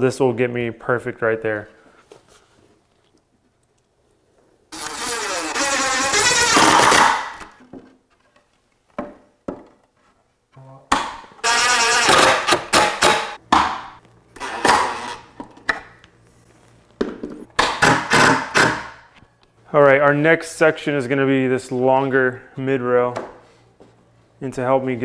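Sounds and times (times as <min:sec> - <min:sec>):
impact driver driving screws: 0:04.8 - 0:07.5, 0:11.4 - 0:13.4.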